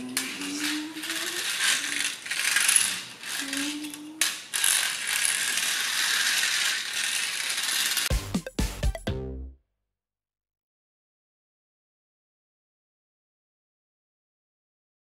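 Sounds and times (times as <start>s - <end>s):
plastic wheels rolling on wood floor: 0.0s - 8.1s
music: 8.1s - 9.7s.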